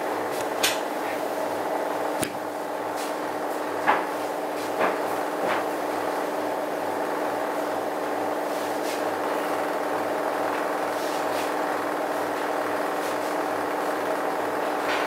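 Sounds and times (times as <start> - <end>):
washing machine motor hum: 0.0 - 15.0.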